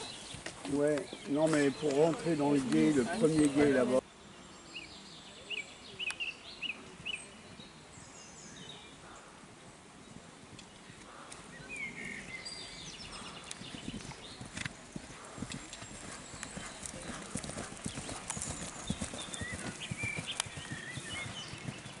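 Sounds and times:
horse hoofbeats on grass: 13.1 - 22.0.

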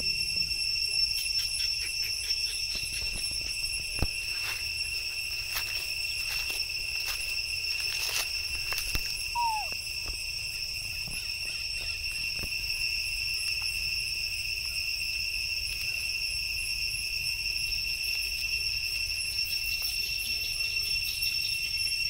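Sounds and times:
high-pitched insect drone: 0.0 - 22.0
short falling squeak: 9.4 - 9.7.

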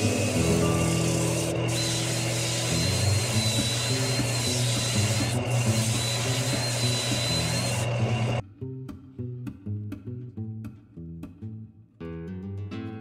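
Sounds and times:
background music: 0.0 - 6.7
sandpaper sanding spinning bowl: 0.0 - 8.4.

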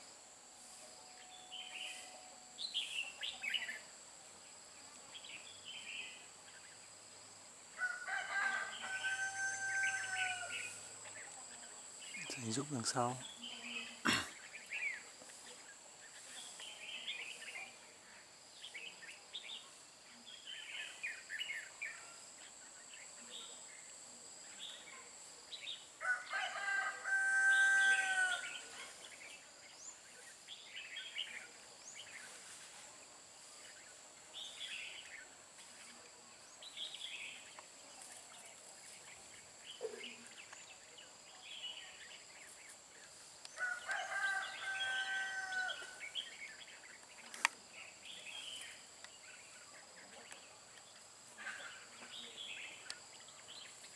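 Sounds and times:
rooster crowing: 7.8 - 10.7, 26.0 - 28.6, 43.6 - 46.0.

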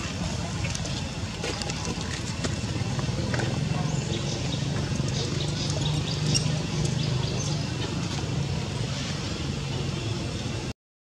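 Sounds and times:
birds chirping: 2.8 - 10.1.

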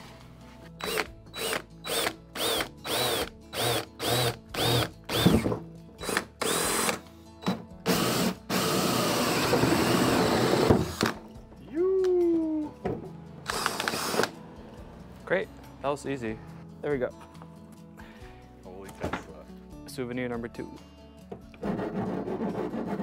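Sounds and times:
power drill hole saw cutting metal: 0.8 - 7.0, 7.9 - 11.2, 13.5 - 14.3.

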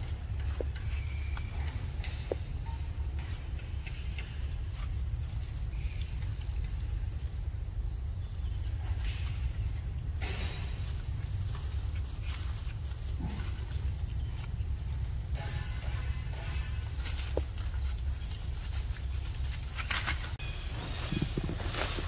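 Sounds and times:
constant low rumble: 0.0 - 22.0
insects trilling: 0.0 - 22.0
leaves rustling: 4.6 - 22.0.

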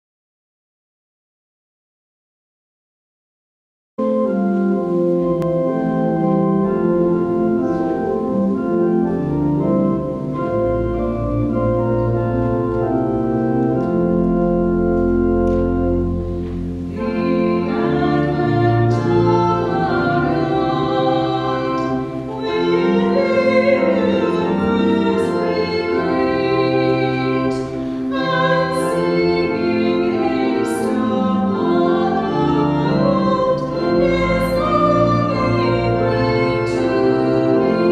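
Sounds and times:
church organ chords: 4.0 - 37.9
woman singing: 17.0 - 37.9.

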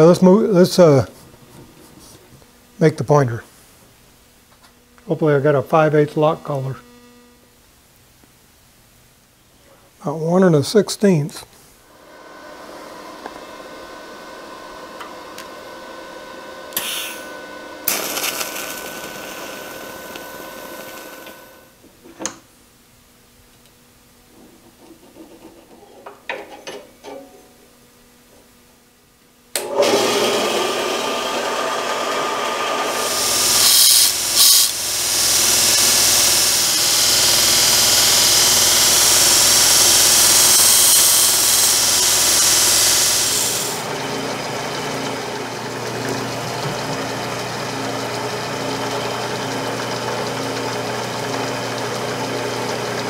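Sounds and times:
machine starting: 11.9 - 21.6, 29.6 - 53.0
electric welding arc buzzing: 13.2 - 21.7, 32.3 - 45.3
belt grinder grinding metal: 16.8 - 21.5, 29.7 - 53.0.

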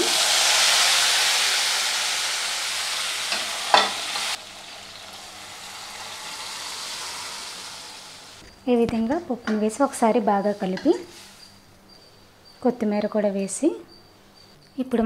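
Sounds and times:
hot oil sizzling: 0.0 - 8.4.

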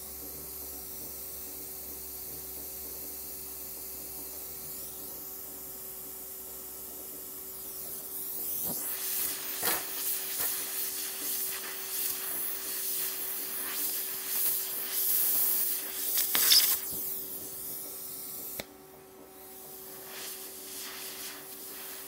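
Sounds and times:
torch flame hissing: 7.6 - 18.6, 19.4 - 22.0.

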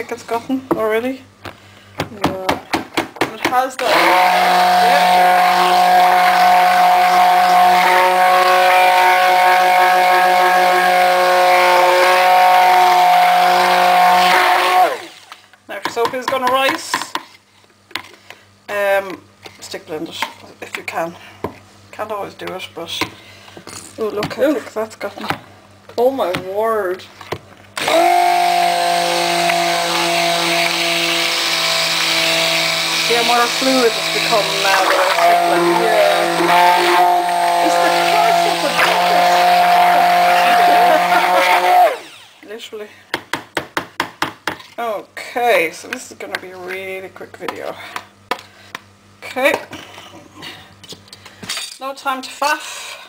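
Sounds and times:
stick blender motor hum: 3.8 - 15.4, 27.8 - 42.6.

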